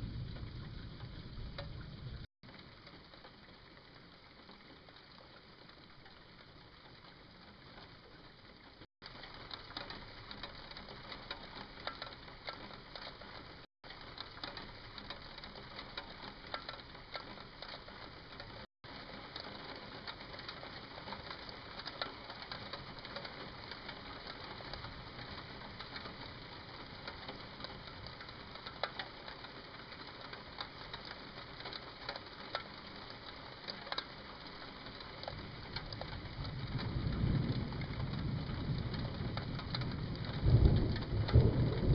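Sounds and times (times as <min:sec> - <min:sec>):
low roll of thunder: 0:00.0 - 0:02.3, 0:35.3 - 0:41.9
rain pattering: 0:00.0 - 0:41.9.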